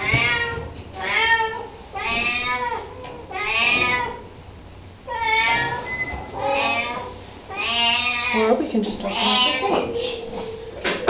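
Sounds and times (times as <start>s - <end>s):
kitten meowing: 6.4s - 8.4s.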